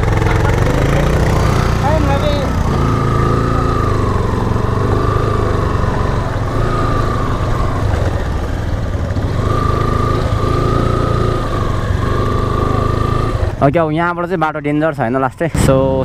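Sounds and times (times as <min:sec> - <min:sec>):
motorcycle engine at low speed: 0:00.0 - 0:14.3, 0:15.0 - 0:16.0.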